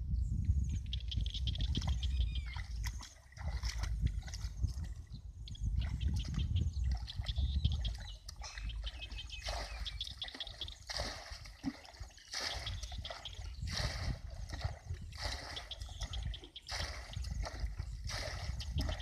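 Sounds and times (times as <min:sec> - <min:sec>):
water splashing from bucket: 0:01.7 - 0:04.8, 0:08.3 - 0:19.0
bucket sloshing in water: 0:01.7 - 0:05.1, 0:05.7 - 0:19.0.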